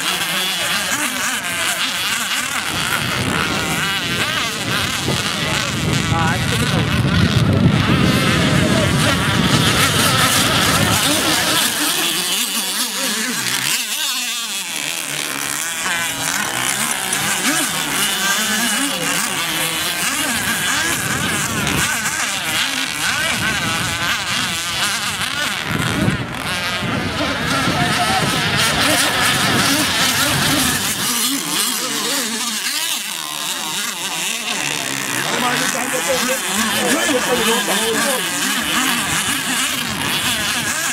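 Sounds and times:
small engines buzzing: 0:00.0 - 0:40.9.

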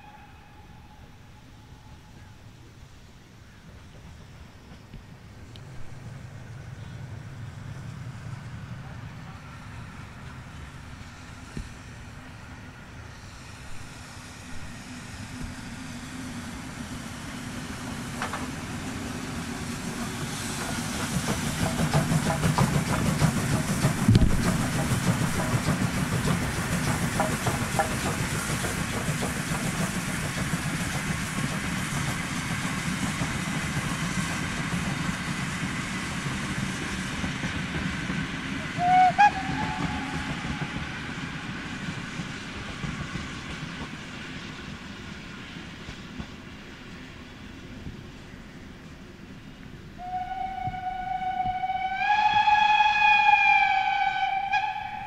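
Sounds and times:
train whistle: 0:00.0 - 0:02.4, 0:38.6 - 0:41.0, 0:50.0 - 0:55.0
steam locomotive exhaust: 0:00.0 - 0:55.0
train wheels clattering on rails: 0:16.9 - 0:48.0.

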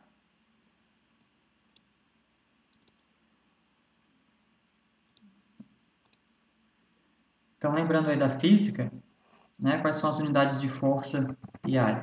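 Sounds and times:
computer mouse clicks: 0:02.7 - 0:03.1, 0:05.1 - 0:06.4, 0:11.2 - 0:11.8.

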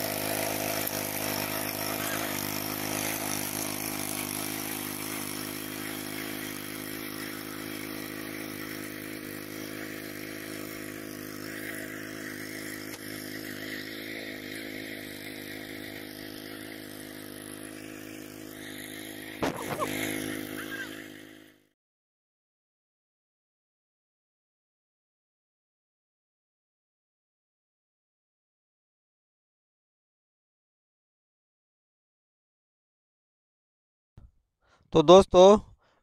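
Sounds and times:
blades churning soil: 0:00.0 - 0:21.6
power tiller engine running: 0:00.0 - 0:21.7.

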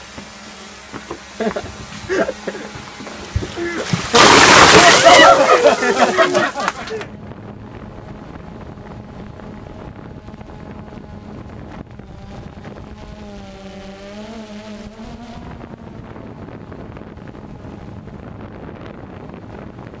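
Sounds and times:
drone motors humming: 0:00.0 - 0:20.0
wind on microphone: 0:06.6 - 0:20.0.

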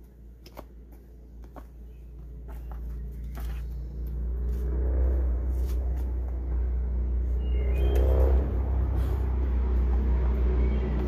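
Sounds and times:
low rumble: 0:01.3 - 0:11.0.

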